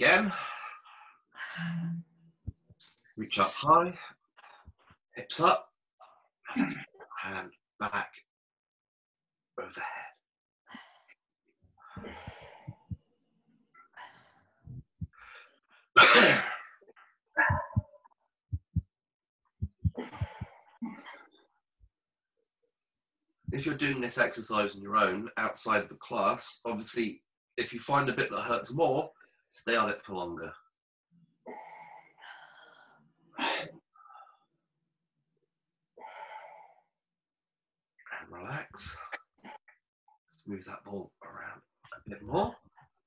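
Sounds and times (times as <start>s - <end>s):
soft low double thumps: 12.0s - 13.0s, 17.4s - 18.9s, 19.6s - 20.5s
person sneezing: 16.0s - 16.6s.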